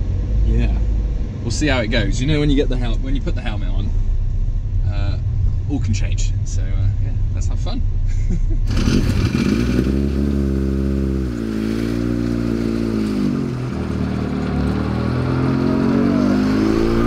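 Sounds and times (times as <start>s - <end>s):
car engine revving: 8.7s - 17.0s.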